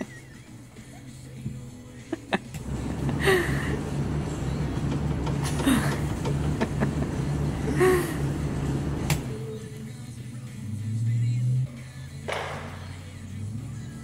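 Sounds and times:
diesel engine rumbling: 2.3 - 14.0.

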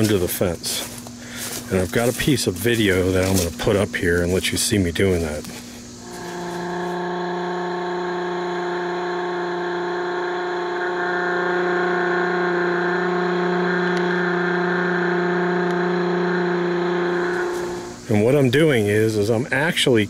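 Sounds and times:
pressure washer motor hum: 5.2 - 18.5
high-pressure water jet hissing: 6.0 - 18.3.

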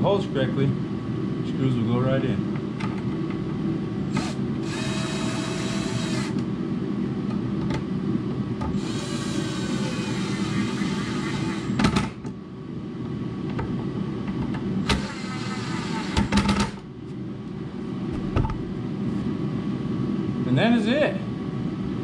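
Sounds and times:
steady low hum: 0.0 - 22.0
power drill whine: 4.1 - 6.4, 8.8 - 12.1, 14.8 - 16.8.

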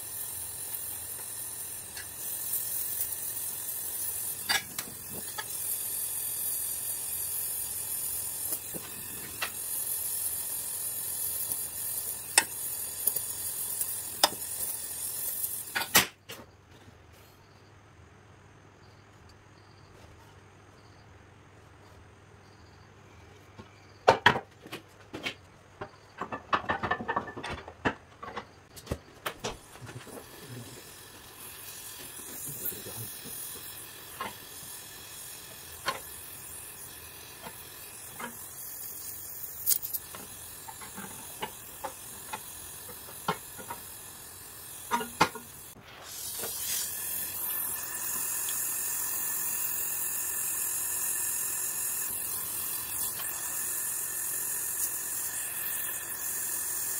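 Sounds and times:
gas torch flame hissing: 0.0 - 16.2, 29.4 - 56.9
metal taps and scrapes: 4.4 - 5.6, 14.2 - 14.7, 23.6 - 30.2, 39.7 - 43.9, 44.9 - 45.5.

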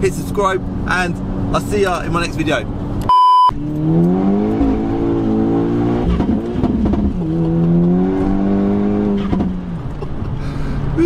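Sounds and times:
high test-tone beep: 3.1 - 3.6
car engine accelerating hard: 3.6 - 11.0.

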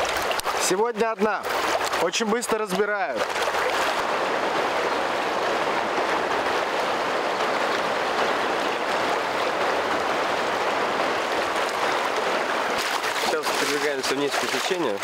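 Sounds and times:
river rushing over shallows: 0.0 - 15.0.

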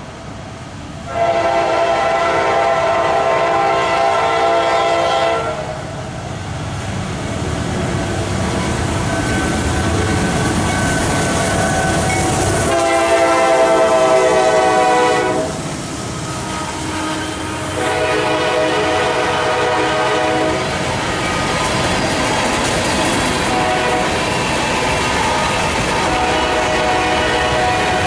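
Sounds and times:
diesel locomotives rumbling: 0.0 - 28.0
train air horn blasts: 1.1 - 6.0, 12.6 - 15.6, 16.2 - 20.8, 23.5 - 24.3, 25.3 - 28.0
freight cars rolling past: 6.1 - 28.0.

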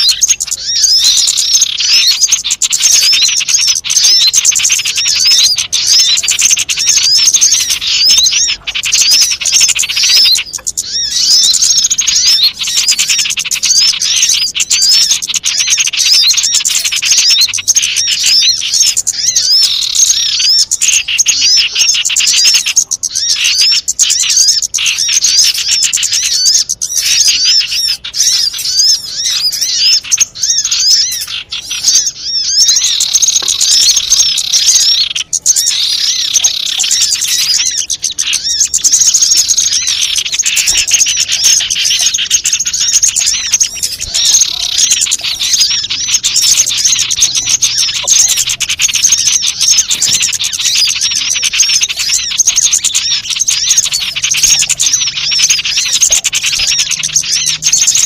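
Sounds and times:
small birds chirping: 0.0 - 58.0.

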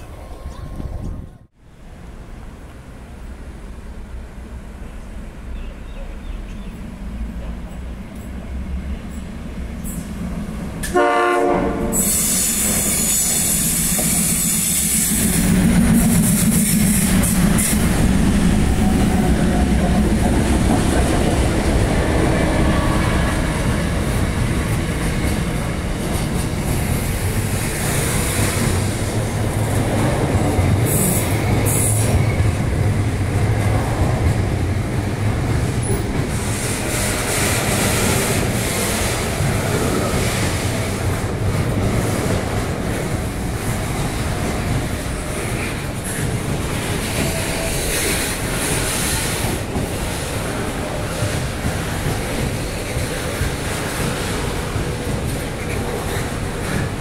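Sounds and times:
train horn: 10.8 - 13.2
train wheels clattering on rails: 11.9 - 57.0.

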